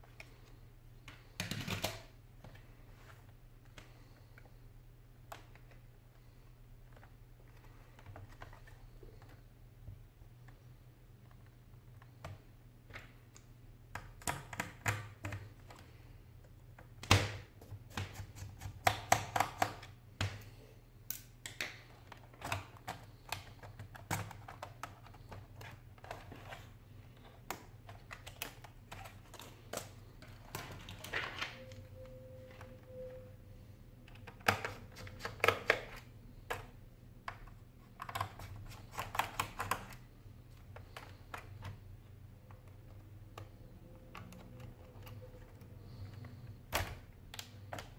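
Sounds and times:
laptop keyboard plastic clicks and snaps: 16.8s - 20.4s, 34.1s - 40.1s.

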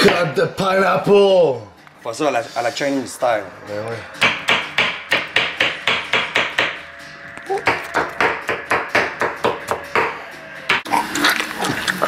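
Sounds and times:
knife chopping on wooden board: 7.6s - 10.9s.

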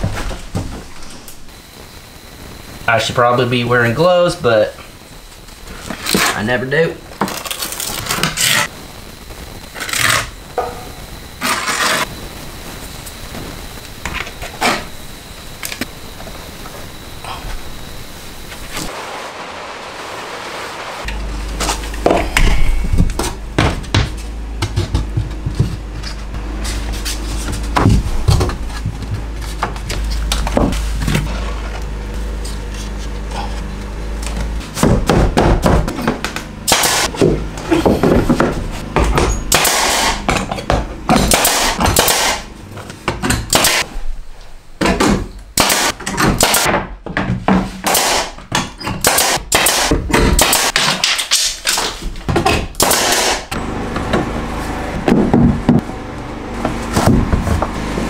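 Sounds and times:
steady low hum: 0.0s - 58.0s
pneumatic brad nailer: 36.7s - 38.0s, 39.2s - 42.5s, 43.2s - 43.9s, 45.0s - 46.7s, 47.8s - 54.2s.

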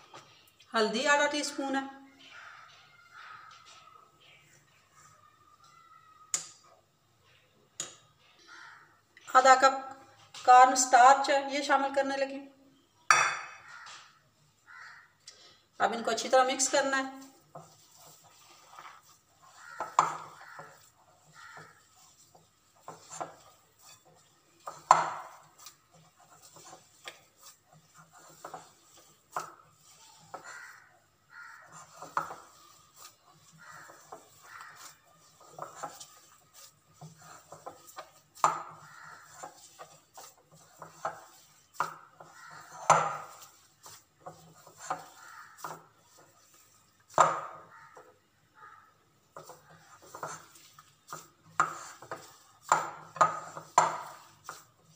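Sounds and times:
hands kneading mashed potato: 16.0s - 54.9s.

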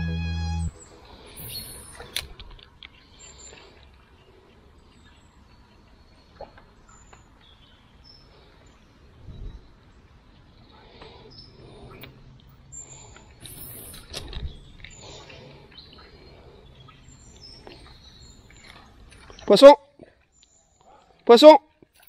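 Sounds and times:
faint high bird chirps: 0.0s - 2.1s
low background noise: 0.0s - 22.0s.

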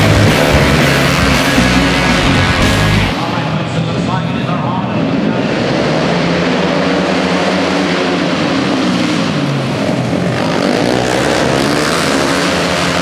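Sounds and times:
racing motorcycle engines: 0.0s - 13.0s.

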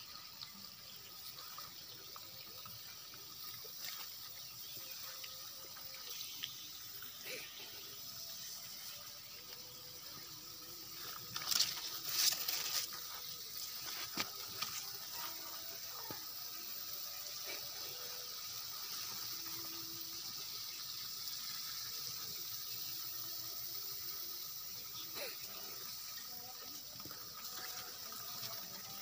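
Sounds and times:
high-pitched hiss: 0.0s - 29.0s
grass leaves rustling: 11.0s - 15.1s.

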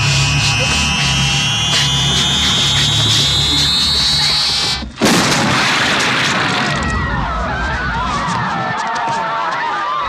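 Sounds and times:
low drone: 0.0s - 4.8s
people screaming: 0.0s - 4.8s, 6.4s - 10.0s
eerie electronic whine: 0.0s - 4.9s
loud blast: 5.0s - 7.3s.

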